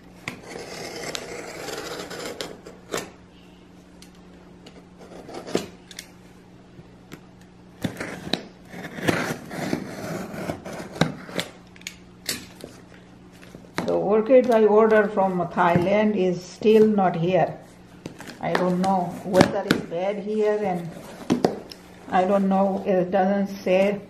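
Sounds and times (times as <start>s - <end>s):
box cutter slicing tape: 7.8s - 11.6s.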